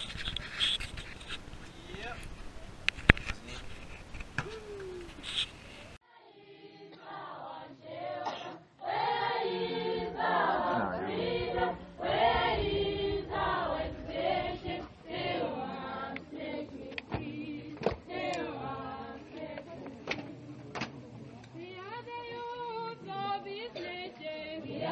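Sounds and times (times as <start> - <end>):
choir singing: 6.0 - 24.9.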